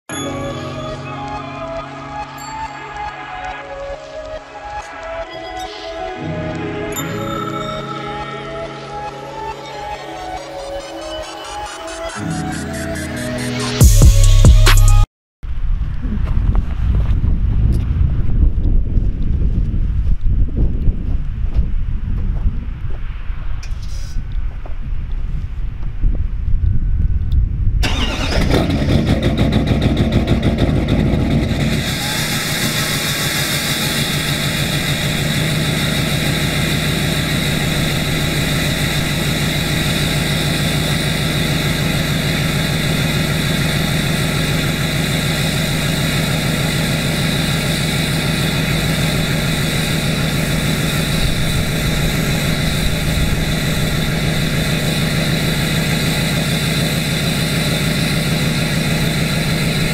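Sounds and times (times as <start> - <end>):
diesel engine starting and idling: 27.8 - 59.9.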